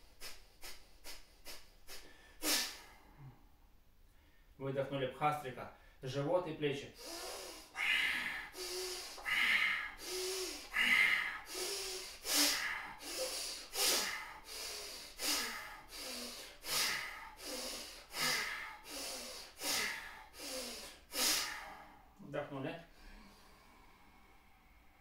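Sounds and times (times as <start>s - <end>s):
man breathing forcefully: 0.0s - 3.5s, 7.0s - 22.2s.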